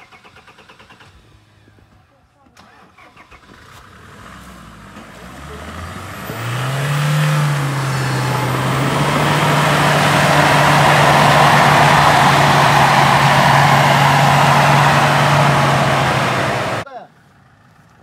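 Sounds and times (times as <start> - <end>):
off-road vehicle engine revving: 3.2 - 16.8.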